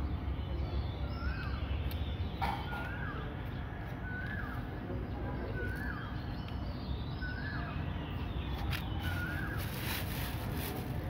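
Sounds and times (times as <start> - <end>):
bird calling: 1.0 - 6.4, 7.2 - 10.4.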